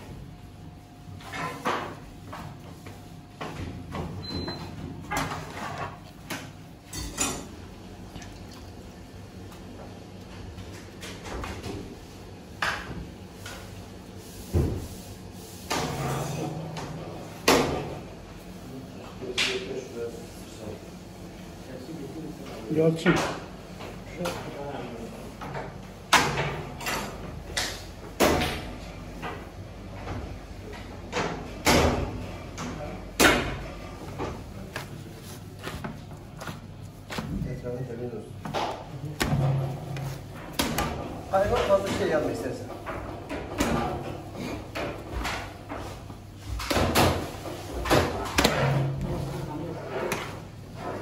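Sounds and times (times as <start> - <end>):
hands kneading crumbly mixture: 34.4 - 38.3
pastry sheets flapping slaps: 46.6 - 48.8.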